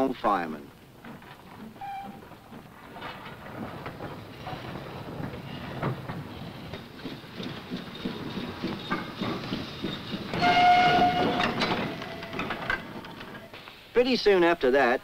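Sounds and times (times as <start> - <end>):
steam locomotive rumble: 0.0 - 13.9
steam whistle: 1.8 - 2.2, 10.4 - 12.6.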